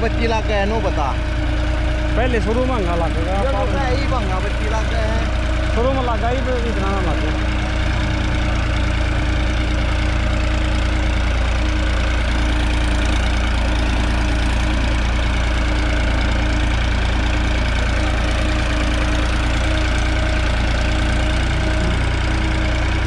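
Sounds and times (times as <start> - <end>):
tractor diesel engine under load: 0.0 - 23.0.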